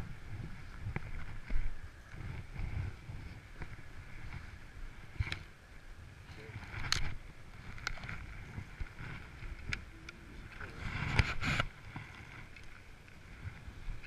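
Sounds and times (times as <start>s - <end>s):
sleeve rustling against camera: 6.3s - 12.5s.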